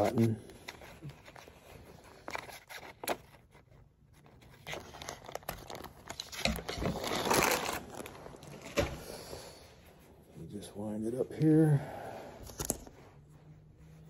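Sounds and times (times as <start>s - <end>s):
plastic wrapping crinkling: 4.4s - 8.9s.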